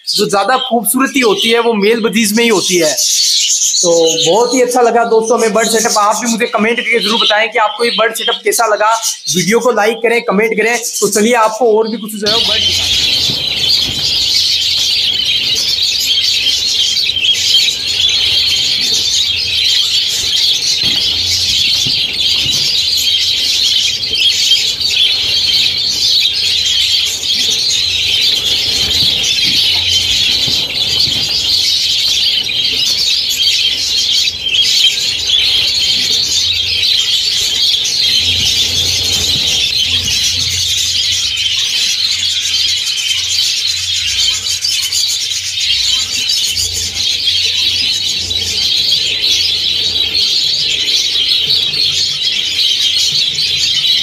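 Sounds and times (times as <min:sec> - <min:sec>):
budgies chattering and chirping: 0:00.0 - 0:54.0
wings flapping: 0:10.6 - 0:42.5.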